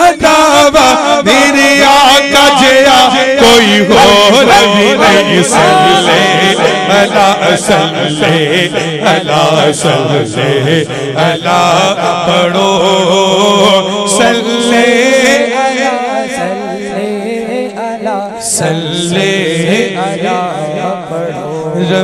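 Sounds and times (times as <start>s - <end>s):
man singing through microphone: 0.0s - 22.0s.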